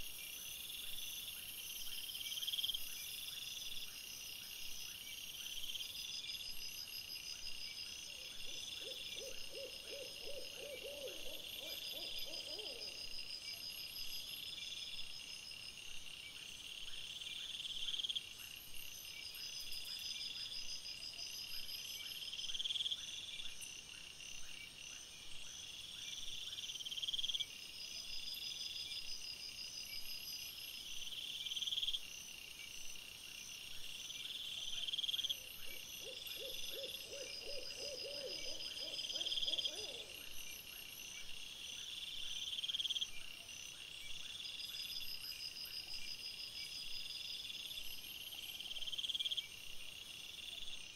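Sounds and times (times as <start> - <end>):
crickets chirping in pulsed trills: 0.0 - 50.9
low repeated animal calls: 8.2 - 13.3, 35.1 - 40.4.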